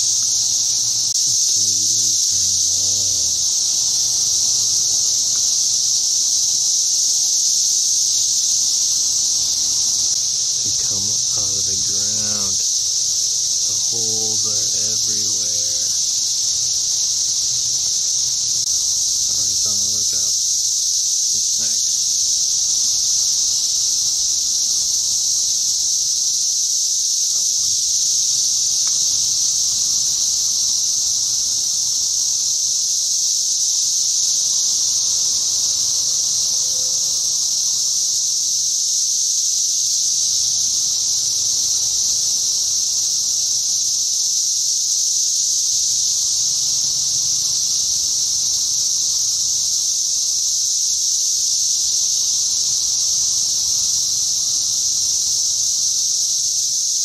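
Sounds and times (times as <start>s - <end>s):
cicadas chorus drone: 0.0s - 57.0s.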